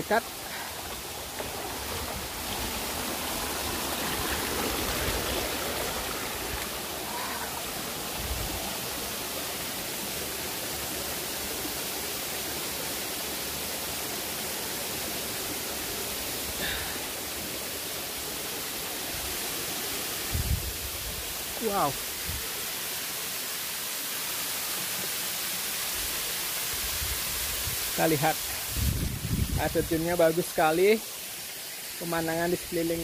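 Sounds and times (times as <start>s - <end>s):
stream running over boulders: 0.0s - 33.0s
waterfall rushing: 0.0s - 33.0s.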